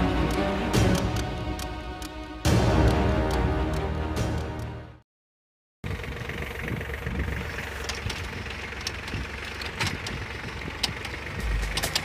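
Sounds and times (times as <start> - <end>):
tractor engine running: 0.0 - 4.9, 5.8 - 12.0
potato digger clicks and rattles: 7.8 - 12.0.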